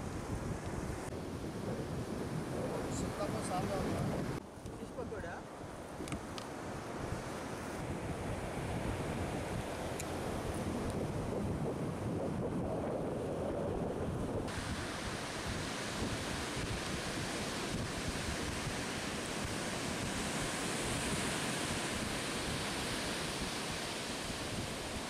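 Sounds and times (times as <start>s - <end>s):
waves washing on beach: 0.0s - 25.0s
wind buffeting microphone: 0.0s - 25.0s.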